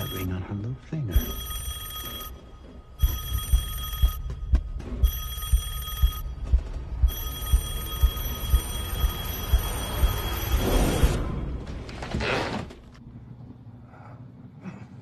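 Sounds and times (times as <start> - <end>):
telephone ringing: 0.0 - 0.5, 1.1 - 6.5, 7.1 - 11.2.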